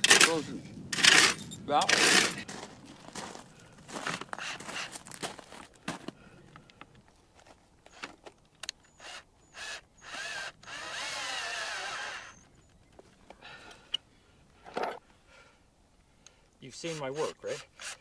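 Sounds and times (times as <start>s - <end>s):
cordless drill running: 4.4s - 4.9s, 9.0s - 12.4s.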